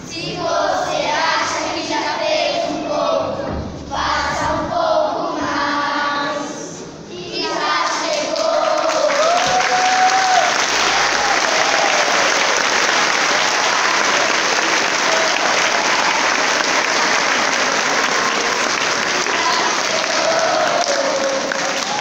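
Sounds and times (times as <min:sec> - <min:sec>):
crowd clapping: 0:08.1 - 0:22.0.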